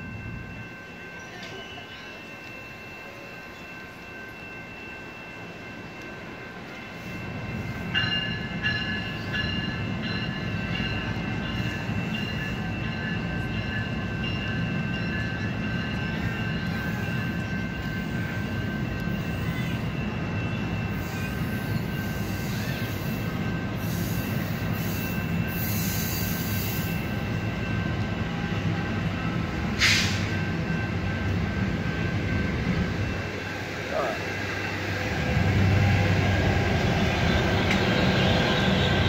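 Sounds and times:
train rumbling past: 0.0s - 39.0s.

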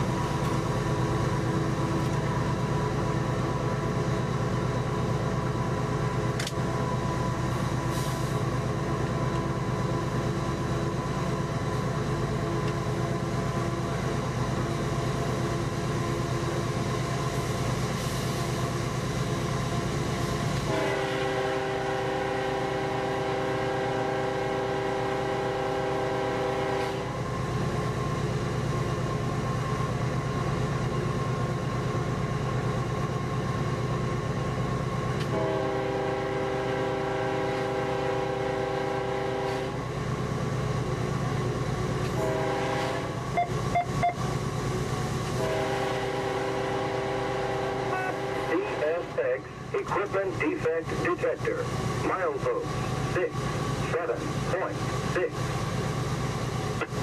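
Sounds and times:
train rumbling: 0.0s - 57.0s
locomotive air horn blasts: 20.6s - 27.2s, 35.3s - 39.8s, 42.1s - 44.2s, 45.3s - 48.8s.

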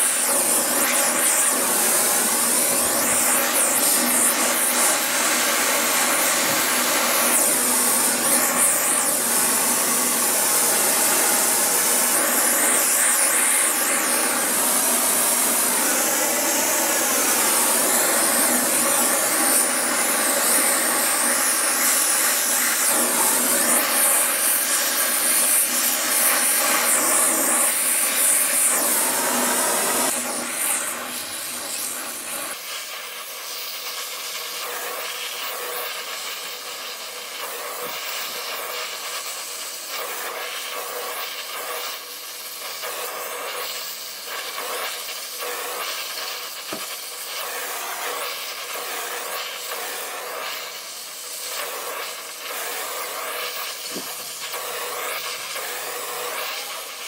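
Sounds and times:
gas torch flame hissing: 0.0s - 57.0s.

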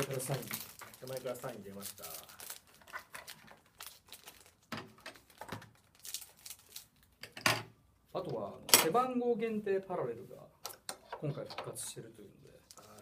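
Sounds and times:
wrappers crinkling: 0.0s - 7.2s, 12.6s - 13.0s.

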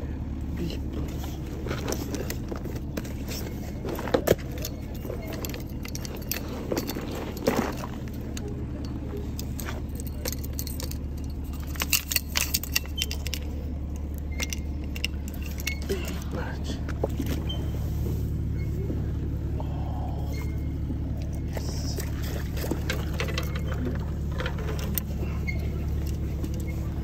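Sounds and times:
low rumble: 0.0s - 27.0s
fishing tackle clicks and rattles: 1.7s - 16.2s, 21.2s - 26.8s.

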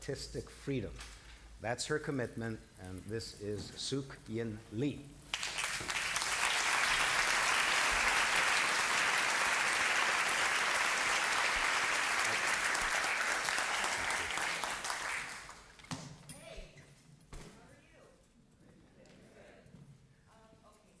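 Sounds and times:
audience applauding: 5.3s - 15.8s.

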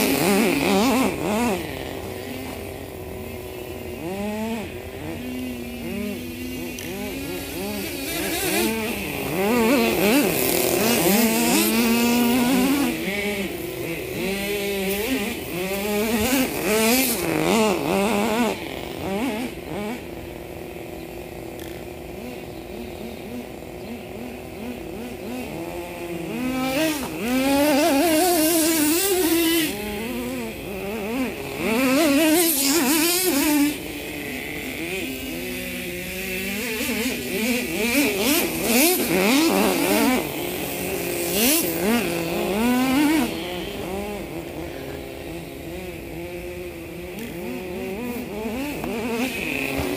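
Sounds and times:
small engine revving: 0.0s - 49.9s.

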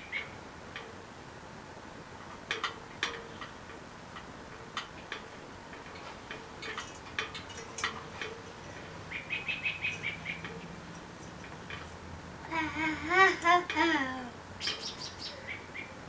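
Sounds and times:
bird chirping: 0.0s - 0.4s, 8.7s - 11.4s, 14.6s - 16.0s.

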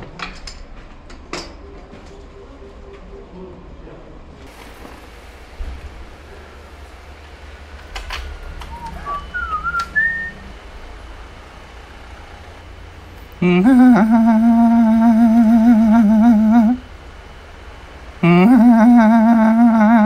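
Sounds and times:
whistled chirps: 8.6s - 10.5s
person imitating motorcycle engine: 13.4s - 16.9s, 18.2s - 20.0s.

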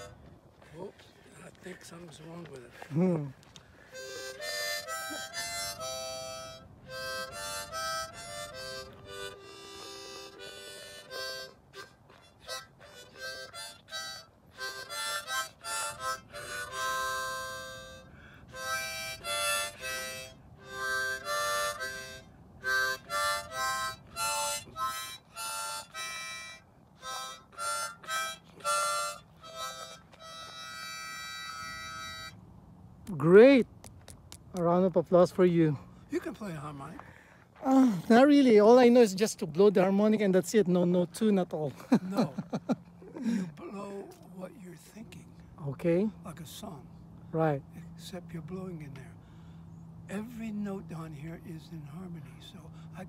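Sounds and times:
harmonica: 0.0s - 0.9s, 1.8s - 33.4s, 35.7s - 45.1s, 47.4s - 53.0s.

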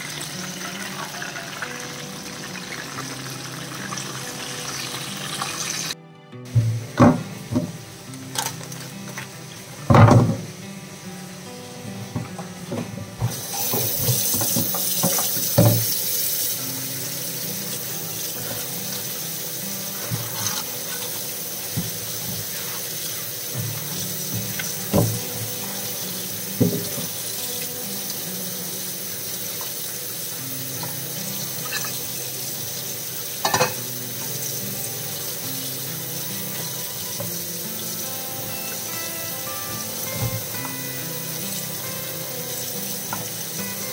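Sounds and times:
knocks in plastic colander: 9.9s - 10.5s
tap water running into sink: 12.1s - 43.9s.

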